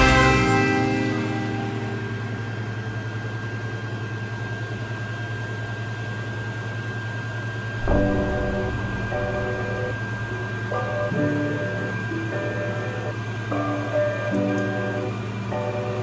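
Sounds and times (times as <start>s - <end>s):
music: 0.0s - 3.0s, 7.8s - 16.0s
faint high whine: 0.0s - 16.0s
printer fans and motors humming: 0.0s - 16.0s.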